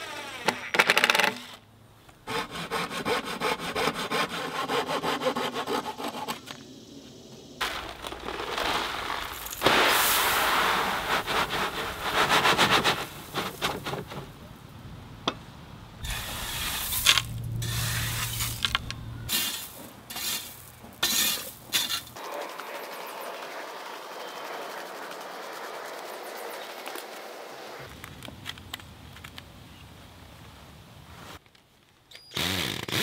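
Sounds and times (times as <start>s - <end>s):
gravel pouring from wheelbarrow: 7.6s - 13.8s, 16.0s - 26.6s
metal rake scraping through gravel: 7.6s - 13.8s, 16.0s - 27.1s
stones clinking: 16.1s - 22.2s.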